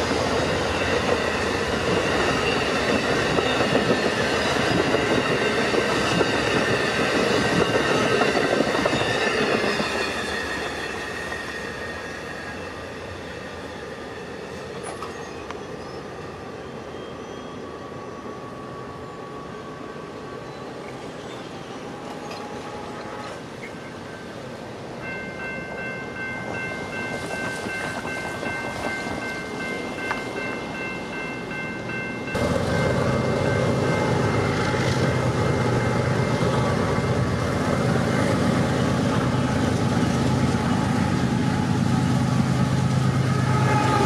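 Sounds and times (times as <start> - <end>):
diesel locomotives rumbling: 0.0 - 44.0
train horn chord: 43.1 - 44.0.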